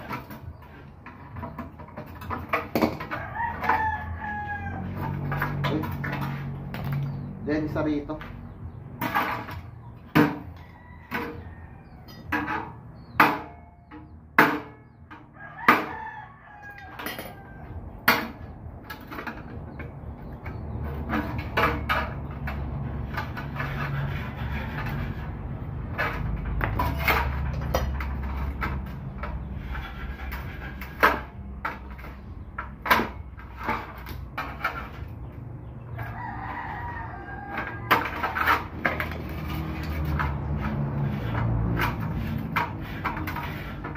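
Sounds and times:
clicks and knocks on metal box: 0:00.0 - 0:03.9
rooster crowing: 0:03.0 - 0:05.4, 0:10.5 - 0:12.3, 0:15.3 - 0:17.9, 0:35.9 - 0:38.5.

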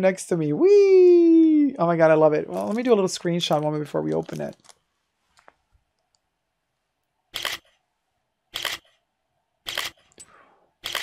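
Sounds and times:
camera shutter clicking: 0:07.3 - 0:07.7, 0:08.5 - 0:08.9, 0:09.7 - 0:10.1.

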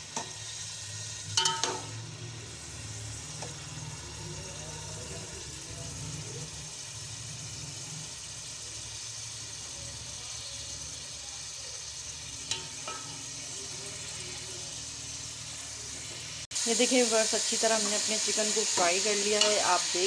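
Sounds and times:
chicken sizzling in oil: 0:00.0 - 0:20.0.

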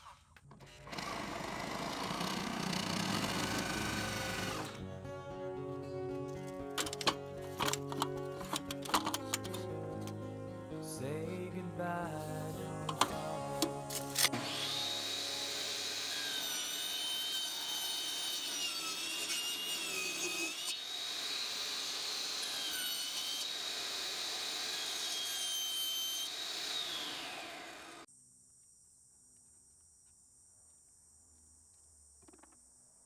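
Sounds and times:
table saw cutting plastic tube: 0:00.0 - 0:04.8, 0:12.7 - 0:28.1.

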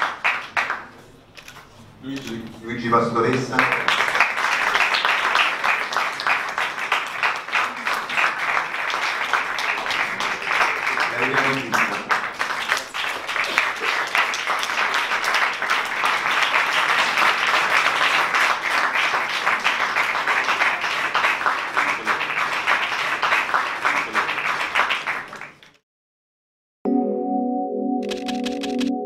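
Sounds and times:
audience applause: 0:00.0 - 0:01.1, 0:03.0 - 0:25.8
music of held tones: 0:26.9 - 0:29.0.

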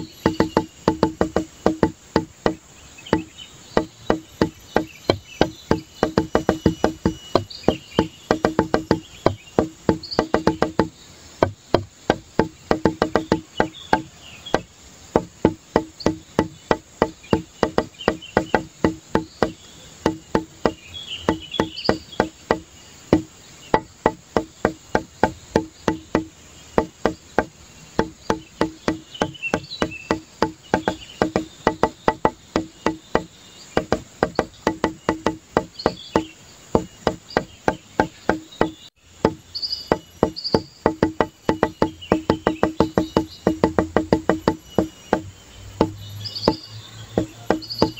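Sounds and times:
faint high chirps: 0:00.0 - 0:02.3
rapid wooden clicks: 0:00.0 - 0:47.9.

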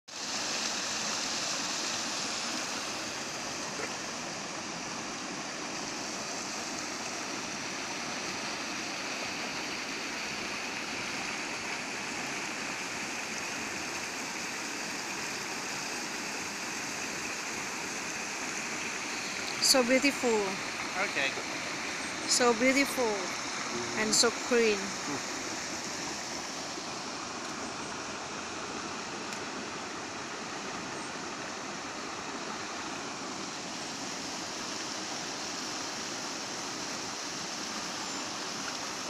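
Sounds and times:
creek rushing over stones: 0:00.1 - 0:39.0.

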